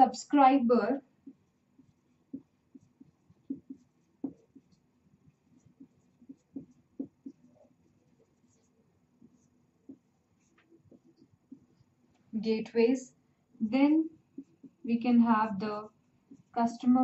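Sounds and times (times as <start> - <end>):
pen tapping and scratching: 1.2 - 12.2, 14.3 - 14.9, 16.0 - 16.6.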